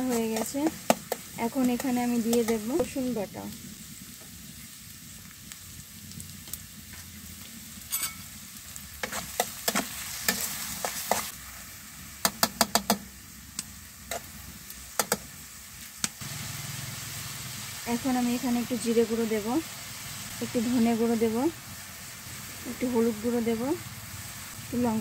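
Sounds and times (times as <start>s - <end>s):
onions sizzling in hot oil: 0.0s - 25.0s
metal spatula scraping a pan: 9.0s - 11.3s.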